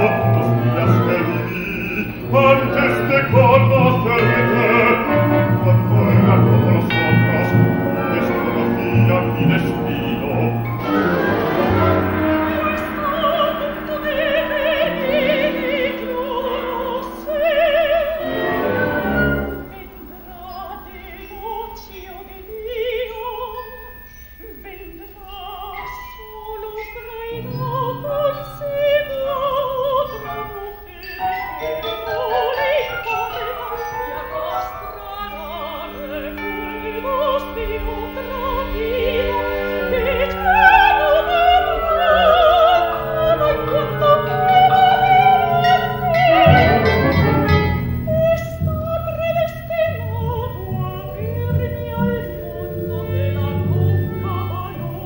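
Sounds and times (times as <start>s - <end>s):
orchestra: 0.0s - 55.0s
woman singing opera: 0.0s - 55.0s.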